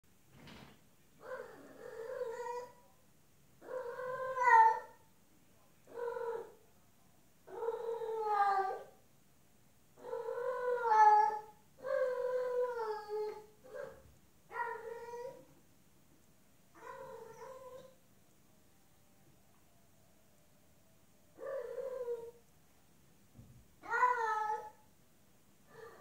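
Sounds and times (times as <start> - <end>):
cat yowling: 1.2 - 2.8, 3.6 - 5.0, 7.5 - 8.9, 10.0 - 15.5, 16.8 - 18.0, 21.4 - 22.4, 23.8 - 24.8.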